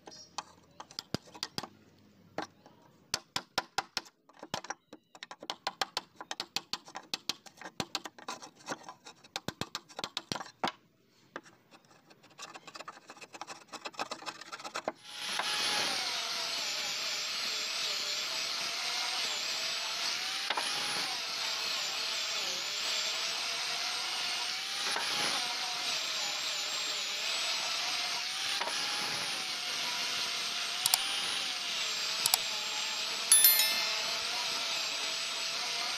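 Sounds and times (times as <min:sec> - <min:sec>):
hand saw cutting wood: 0:12.4 - 0:33.2
electric disc sander whining: 0:15.1 - 0:23.1.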